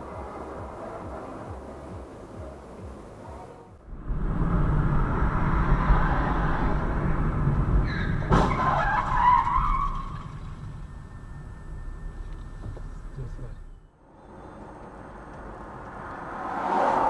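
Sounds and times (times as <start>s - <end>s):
car road and engine noise: 0.0s - 17.0s
wavering squeal: 7.7s - 15.6s.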